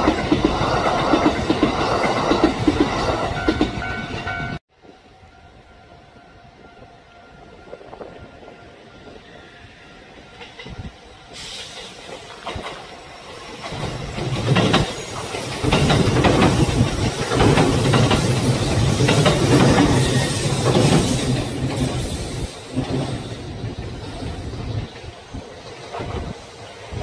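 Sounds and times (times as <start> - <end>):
train rumble: 0.0 - 27.0
train wheels clacking over rail joints: 10.4 - 26.6.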